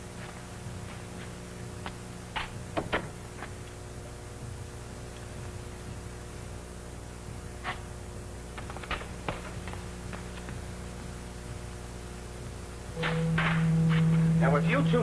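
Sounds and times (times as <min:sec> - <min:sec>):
low hum: 0:09.6 - 0:15.0.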